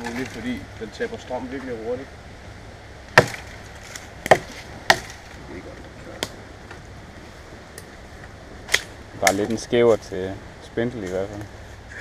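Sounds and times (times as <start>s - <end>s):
knife chopping into wood: 3.2s - 5.2s.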